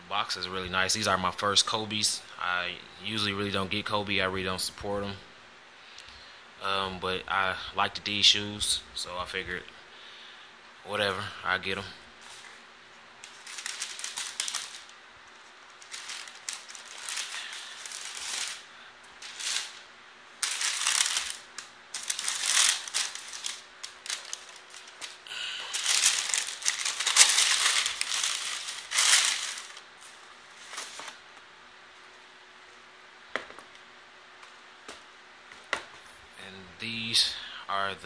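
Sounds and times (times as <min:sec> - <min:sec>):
tissue paper rustling and crinkling: 0:13.2 - 0:31.2.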